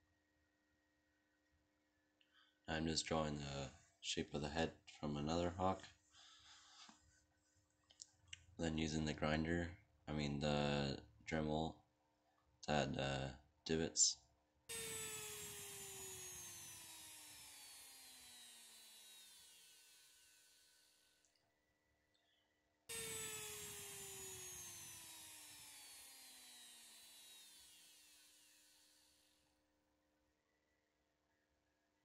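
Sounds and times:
rotary tool spinning down: 14.7 - 21.3, 22.9 - 29.5.

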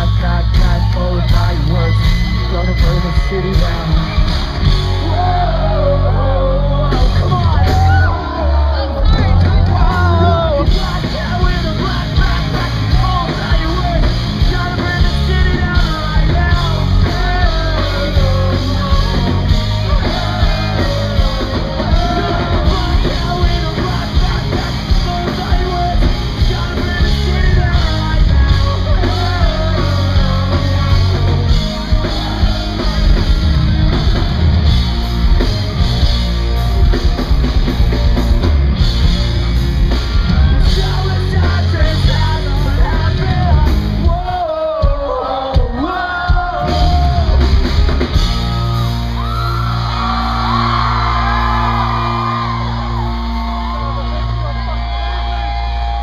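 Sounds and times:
person singing lead vocal: 0.0 - 34.3, 40.2 - 47.6
rock band playing loudly: 0.0 - 56.0.

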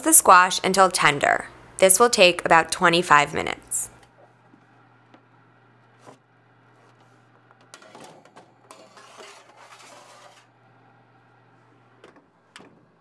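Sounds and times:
low steady hum: 0.0 - 13.0
baking sheet scraping on rack: 5.9 - 10.6.

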